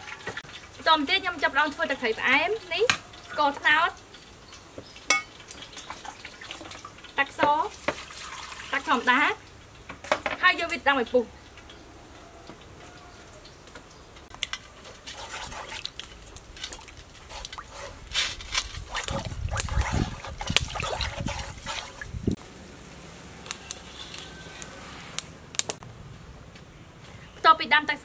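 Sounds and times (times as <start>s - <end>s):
water boiling and bubbling in a pot: 0.0s - 25.8s
metal spoon clinking against pot: 5.1s - 5.4s.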